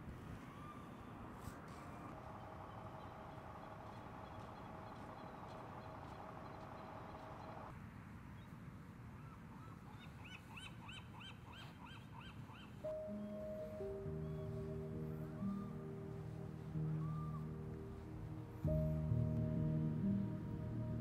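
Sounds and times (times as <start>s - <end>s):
soft sustained music notes: 12.8s - 21.0s
low hum: 13.0s - 21.0s.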